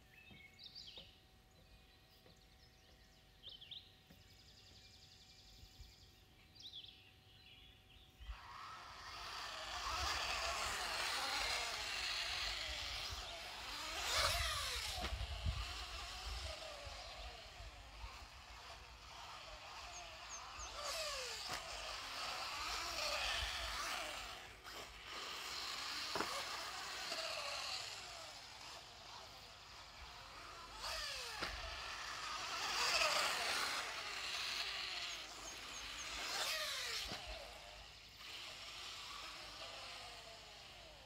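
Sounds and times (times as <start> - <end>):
electric motor whining: 8.2 - 41.0.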